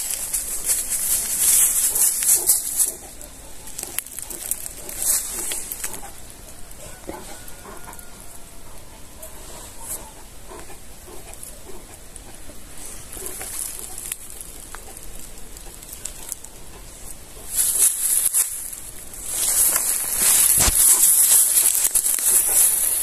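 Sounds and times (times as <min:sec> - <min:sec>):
loud dry rustle: 0:00.0 - 0:03.2, 0:17.5 - 0:23.0.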